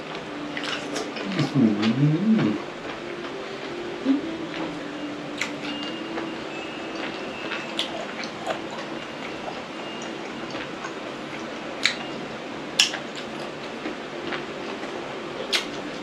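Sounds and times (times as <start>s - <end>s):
steady low hum: 0.0s - 16.0s
chewing and mouth smacks: 15.5s - 15.8s.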